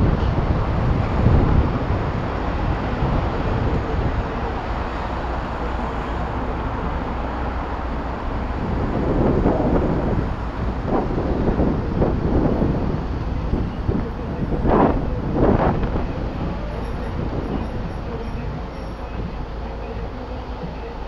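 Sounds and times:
road and traffic rumble: 0.0s - 21.0s
wind buffeting microphone: 0.0s - 21.0s.

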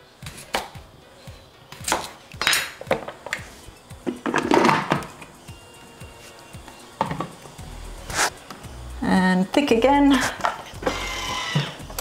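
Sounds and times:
quiet background music: 0.0s - 12.0s
plastic lid knocking and clattering: 4.1s - 5.1s.

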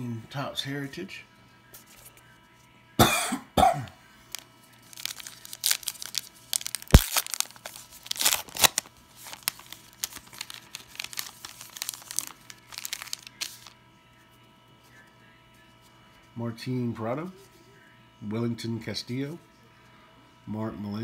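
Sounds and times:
card pack wrapper tearing and crinkling: 4.3s - 13.8s
wrapper sharp snap: 5.0s - 13.7s.

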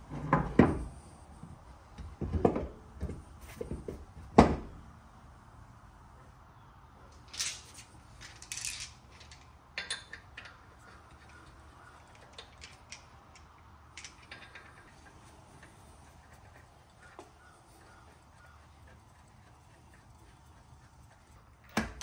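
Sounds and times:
lug nuts clinking: 7.2s - 20.1s.

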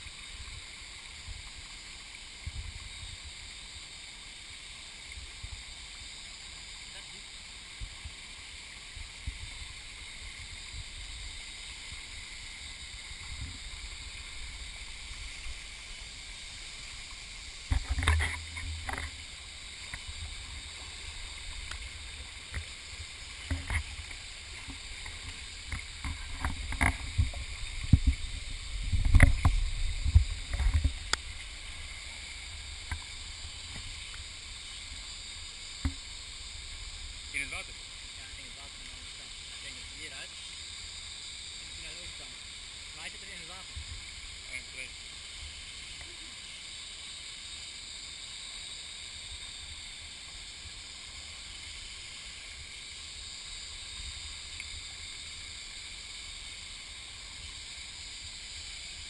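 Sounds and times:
stream rushing over rocks: 0.0s - 46.6s.

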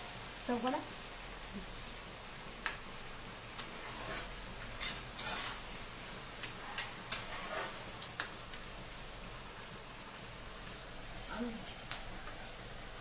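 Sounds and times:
faint sizzle: 0.0s - 13.0s
metal spatula scraping a pan: 3.6s - 5.8s, 6.4s - 8.1s.

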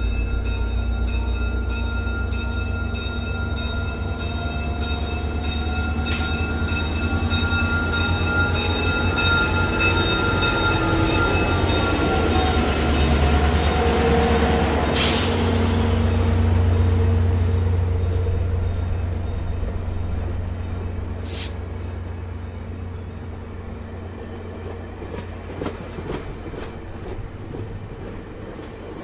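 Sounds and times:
diesel locomotive engine rumble: 0.0s - 29.0s
loud hiss: 21.2s - 21.6s.

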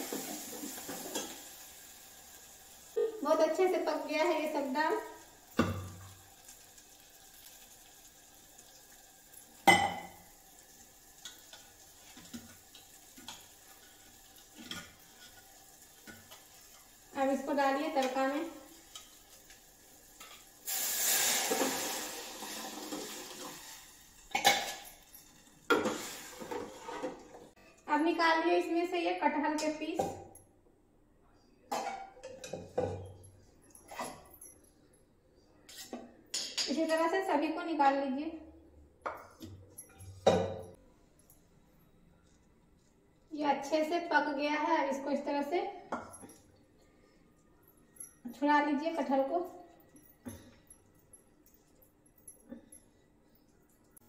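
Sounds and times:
light clinks and taps: 39.1s - 41.4s, 45.9s - 48.4s, 49.6s - 54.0s.

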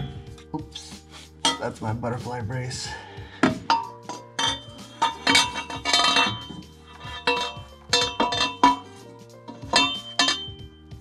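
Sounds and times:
metal exhaust parts clinking: 1.4s - 1.8s, 3.5s - 10.6s.

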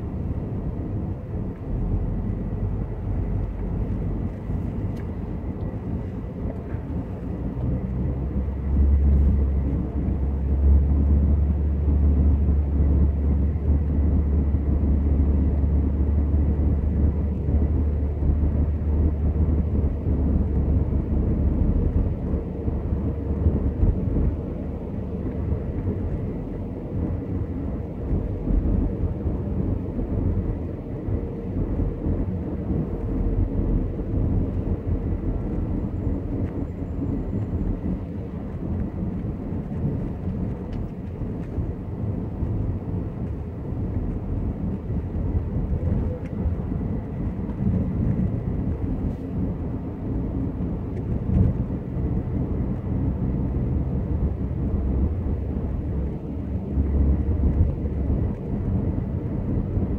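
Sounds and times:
engine and tyre rumble: 0.0s - 59.9s.

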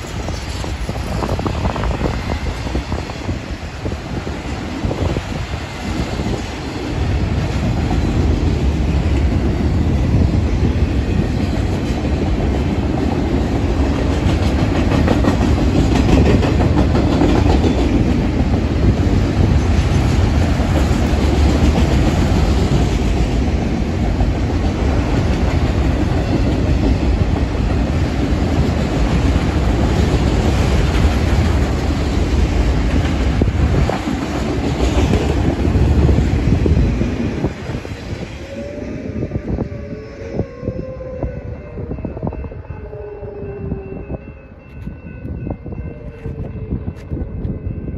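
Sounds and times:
freight train rumbling past: 0.0s - 47.9s
steel wheels clattering over rail joints: 4.2s - 38.4s.

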